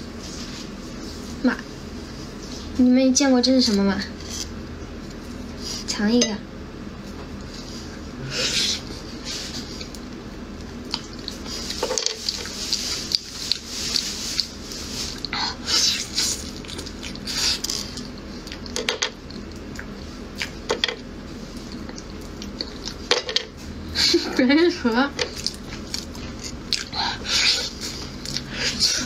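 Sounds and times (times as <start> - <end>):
wet slurping and smacking eating: 25.3 - 29.0.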